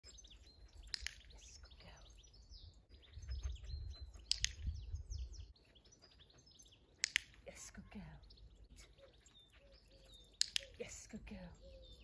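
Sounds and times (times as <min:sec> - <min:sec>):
birds chirping and singing: 0:00.0 - 0:12.0
sharp clicks: 0:00.8 - 0:01.8, 0:04.1 - 0:04.8, 0:06.9 - 0:07.6, 0:10.1 - 0:11.2
wind rumble on microphone: 0:02.4 - 0:05.6.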